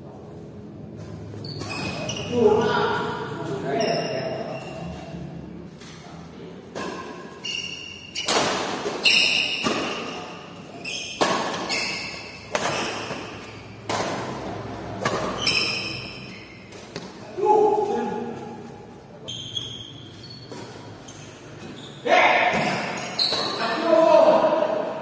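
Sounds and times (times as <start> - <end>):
shoes squeaking on court: 0.9 - 2.4, 3.4 - 5.2, 7.3 - 17.2, 18.4 - 22.1, 22.8 - 23.8
rackets striking shuttlecock: 8.1 - 10.4, 11.1 - 17.1.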